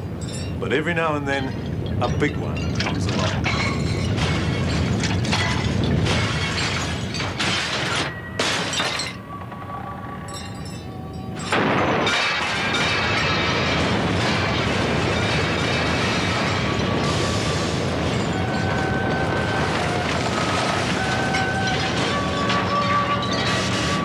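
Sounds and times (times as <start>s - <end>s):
deep earthquake rumble: 1.4s - 8.4s, 9.2s - 22.5s
glass shattering: 1.4s - 9.6s, 10.2s - 24.0s
objects crashing: 1.8s - 24.0s.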